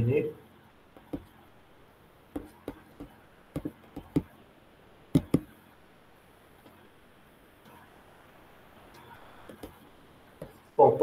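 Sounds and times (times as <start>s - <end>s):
computer mouse clicking: 8.9s - 9.8s.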